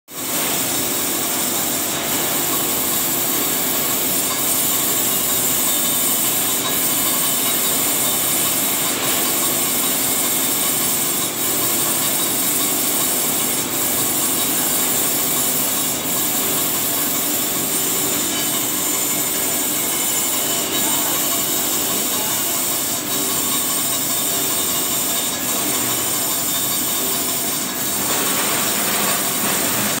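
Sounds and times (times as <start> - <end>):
grinding wheel hiss: 0.2 - 30.0.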